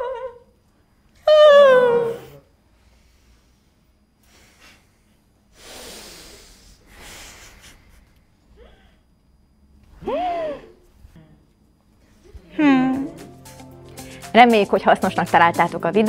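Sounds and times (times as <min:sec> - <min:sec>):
breathy sighs: 0:05.5 - 0:09.1.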